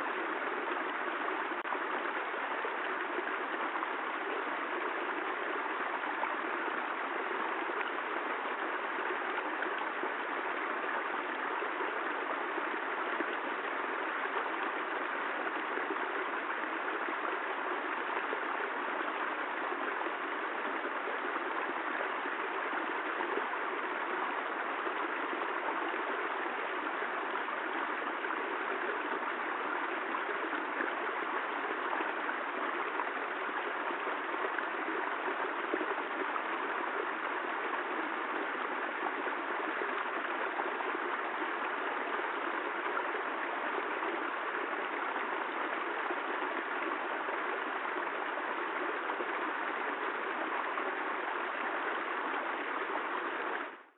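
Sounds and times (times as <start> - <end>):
stream rushing over stones: 0.0 - 53.9.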